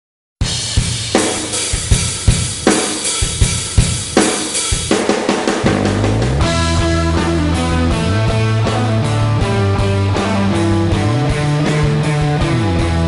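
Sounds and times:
bass drum kicks: 0:05.5 - 0:13.0.

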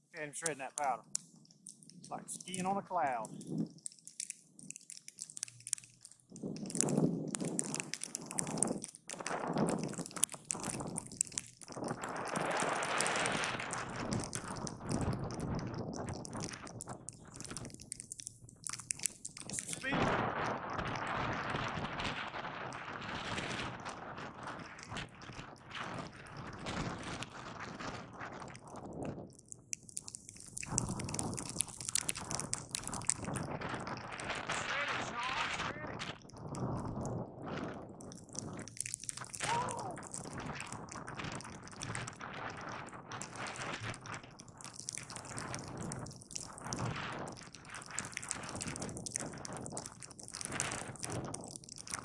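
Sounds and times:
skis sliding over snow: 0:06.4 - 0:14.2, 0:30.6 - 0:36.7
skis carving through snow: 0:11.7 - 0:14.1.

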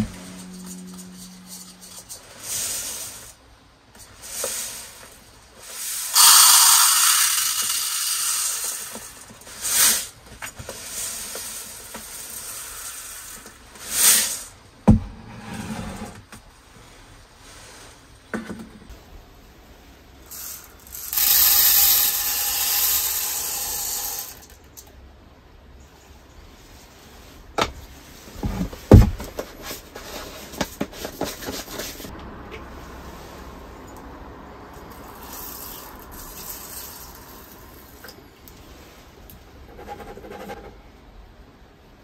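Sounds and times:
rice grains pouring: 0:00.0 - 0:03.4, 0:04.0 - 0:14.6, 0:20.2 - 0:24.6, 0:34.8 - 0:38.0.

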